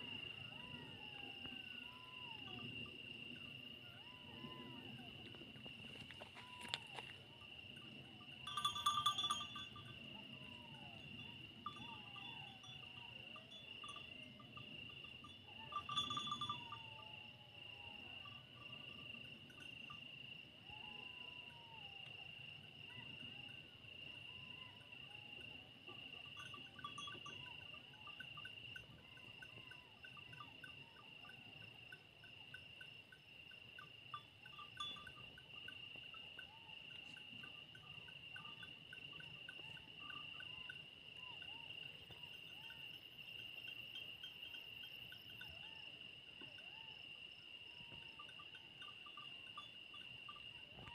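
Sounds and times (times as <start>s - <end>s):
animals howling and yipping: 0.0s - 19.2s, 20.6s - 31.7s, 36.4s - 43.5s
crickets chirping: 0.0s - 50.9s.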